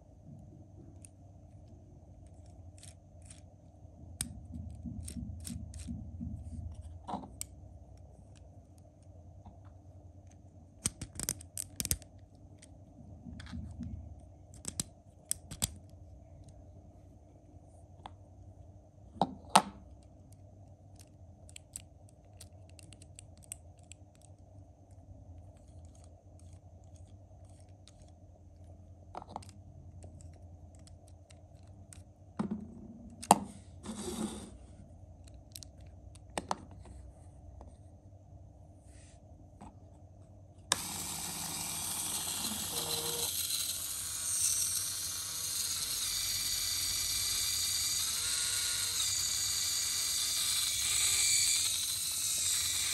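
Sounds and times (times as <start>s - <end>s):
plastic parts clicking and snapping: 2.2s - 3.5s, 4.2s - 6.0s, 10.8s - 16.6s, 19.6s - 24.4s, 25.5s - 32.1s
small electric motor whining: 40.7s - 52.9s.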